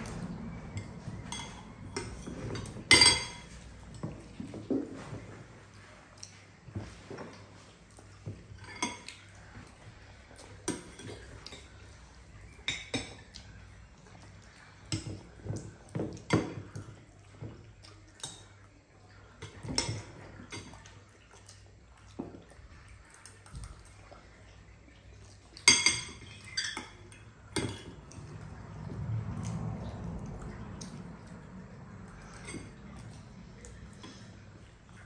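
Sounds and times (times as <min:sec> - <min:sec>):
metal spoons clinking on bowls: 0:00.0 - 0:05.1, 0:08.5 - 0:09.4, 0:10.3 - 0:13.6, 0:25.6 - 0:28.4.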